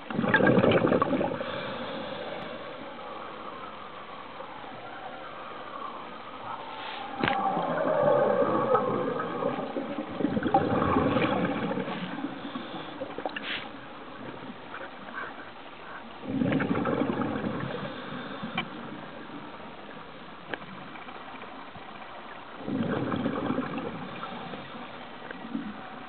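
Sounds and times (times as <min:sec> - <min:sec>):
regulator bubbles gurgling underwater: 0:00.0 - 0:02.6, 0:07.2 - 0:15.1, 0:16.2 - 0:26.0.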